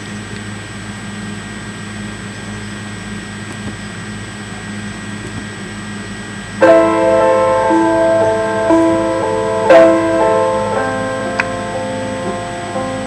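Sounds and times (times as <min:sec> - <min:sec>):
low hum and hiss: 0:06.6 - 0:13.0
piano chords backing track: 0:06.6 - 0:13.0.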